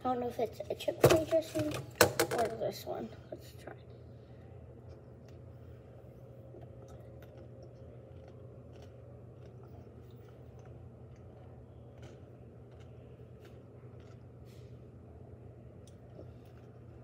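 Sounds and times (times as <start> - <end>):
steady low hum: 0.0 - 17.0
person chewing cucumber: 4.7 - 14.7, 15.7 - 17.0.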